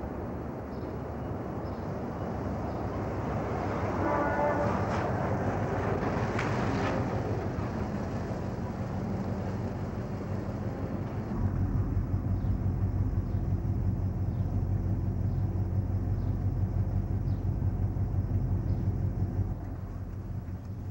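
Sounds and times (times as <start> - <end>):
street traffic: 0.0 - 20.9
van engine running: 5.2 - 20.9.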